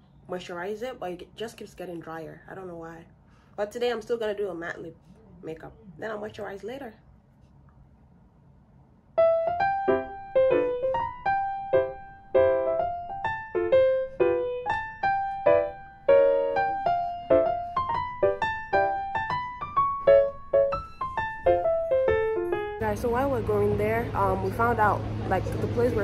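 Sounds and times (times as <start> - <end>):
solo piano melody: 9.2 - 25.7.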